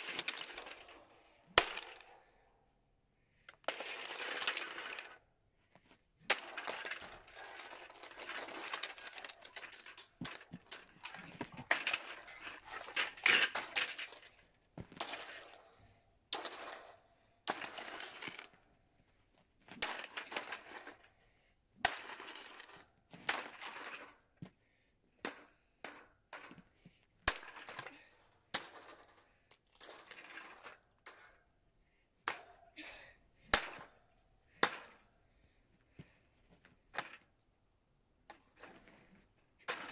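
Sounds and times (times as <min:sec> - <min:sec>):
plastic crunching and cracking: 0:06.3 - 0:15.5.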